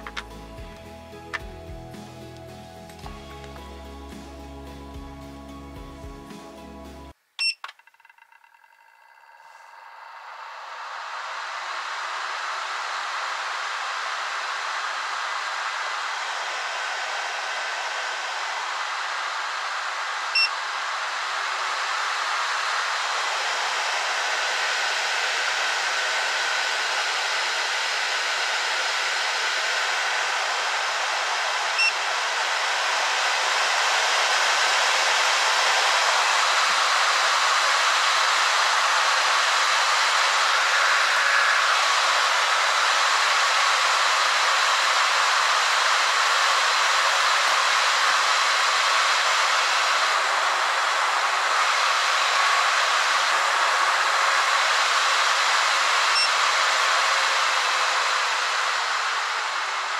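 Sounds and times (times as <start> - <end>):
fan rushing air: 0.0 - 7.1, 9.4 - 59.9
short electronic beep: 7.4 - 9.8.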